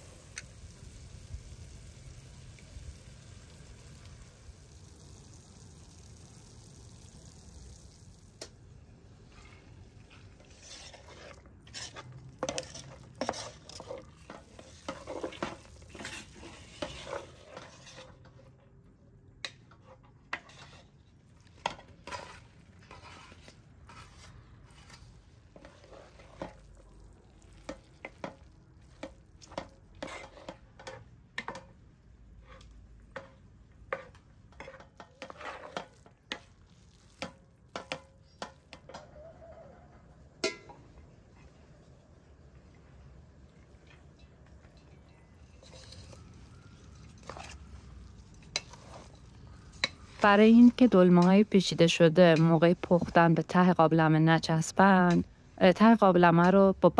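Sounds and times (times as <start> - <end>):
light sizzle of frying filling: 0.0 - 53.6
wooden spoon scraping metal pot: 9.3 - 18.6, 19.4 - 39.1, 44.6 - 56.6.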